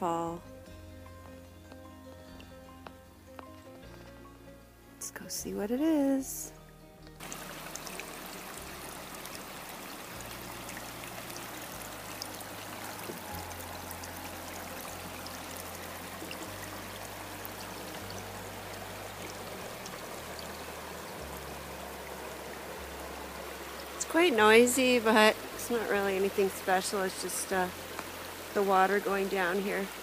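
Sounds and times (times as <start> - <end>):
small waterfall rushing: 7.2 - 30.0.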